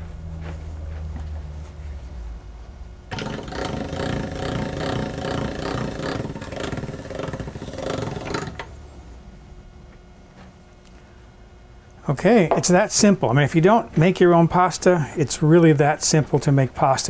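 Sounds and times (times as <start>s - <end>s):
pasta machine gears rattling: 3.1s - 8.7s.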